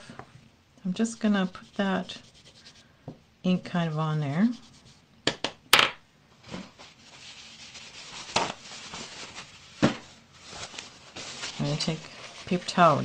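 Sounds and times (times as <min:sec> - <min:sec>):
ink pad rubbing on paper: 0:01.2 - 0:02.8.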